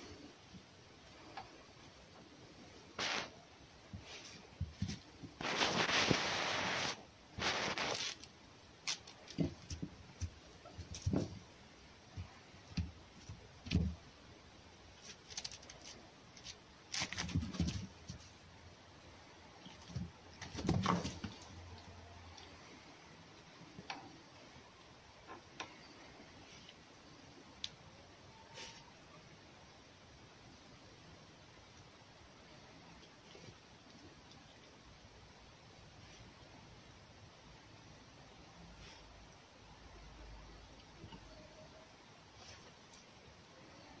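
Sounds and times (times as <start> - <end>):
animal scuffling: 3.9 - 14.1, 15.0 - 18.4, 19.6 - 22.5
knocks and rustles on straw: 3.9 - 14.1, 15.0 - 18.4, 19.7 - 21.5.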